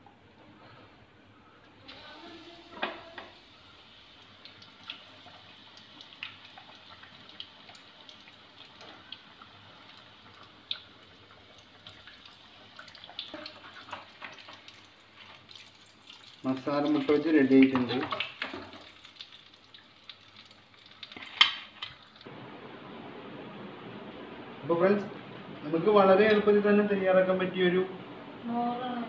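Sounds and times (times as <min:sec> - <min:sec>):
food deep-frying in hot oil: 0:01.8 - 0:22.3.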